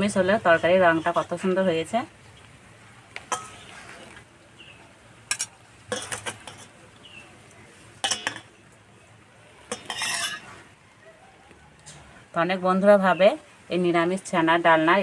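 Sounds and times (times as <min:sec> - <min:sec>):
ladle clinking against steel bowls: 0:03.3 - 0:03.8, 0:05.3 - 0:06.8, 0:08.0 - 0:08.6, 0:09.7 - 0:10.6.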